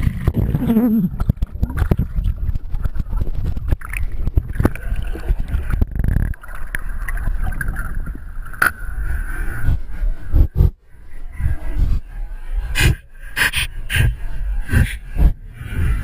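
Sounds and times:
underwater clicks and knocks: 0.0s - 8.8s.

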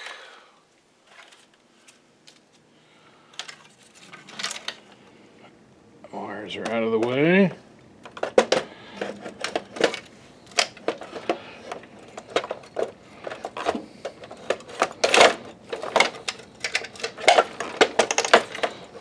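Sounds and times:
plastic and metal parts clicking: 8.0s - 19.0s.

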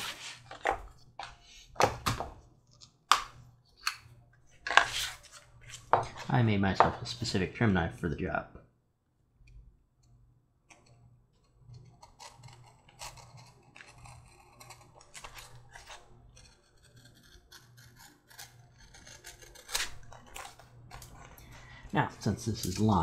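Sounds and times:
knife cutting and scraping leather: 11.8s - 21.3s.

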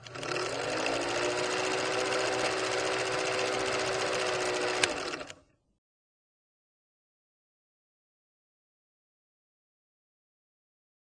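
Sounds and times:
film projector clattering: 0.0s - 5.4s.

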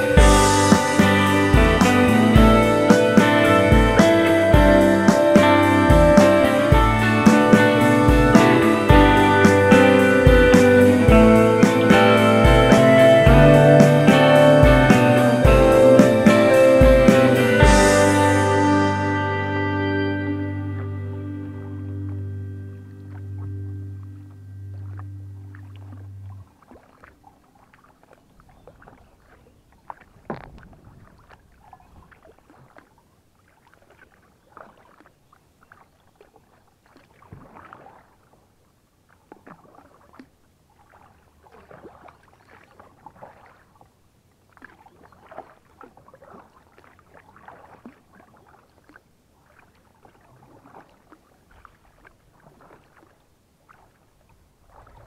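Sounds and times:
paddle splashing in water: 0.0s - 19.6s, 21.0s - 55.0s.

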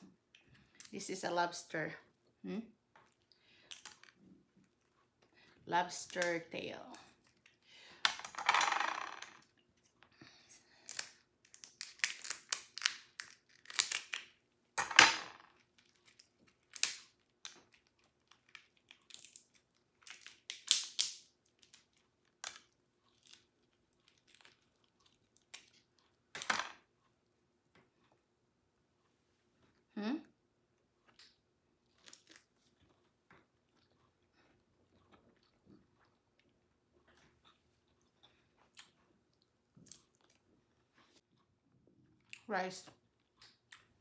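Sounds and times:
lobster shells cracking: 10.8s - 23.5s.

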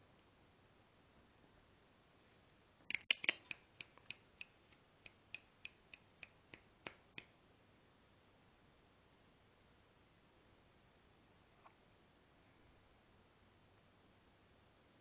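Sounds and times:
person making clicking sounds: 2.9s - 7.4s.

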